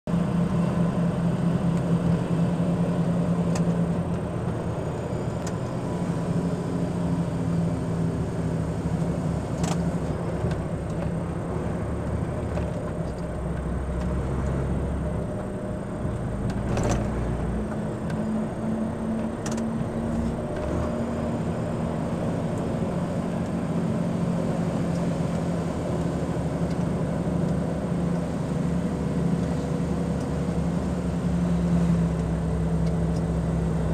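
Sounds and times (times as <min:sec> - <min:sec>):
car engine running: 0:00.1 - 0:33.9
tyres on road: 0:00.1 - 0:33.9.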